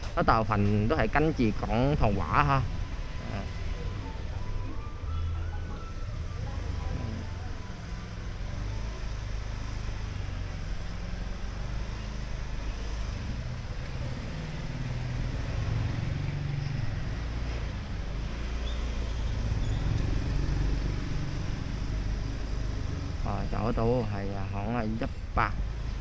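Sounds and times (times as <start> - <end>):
traffic rumble: 0.0 - 26.0.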